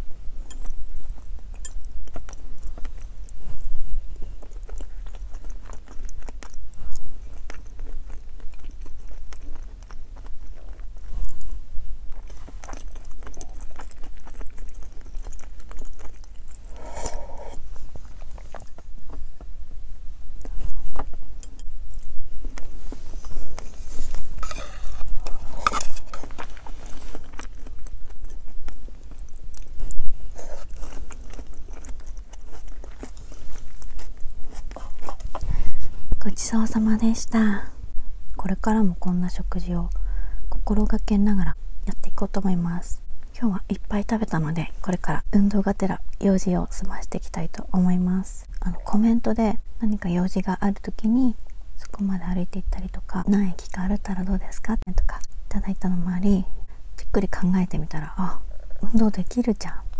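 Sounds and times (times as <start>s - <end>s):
person chewing: 0.0s - 36.2s.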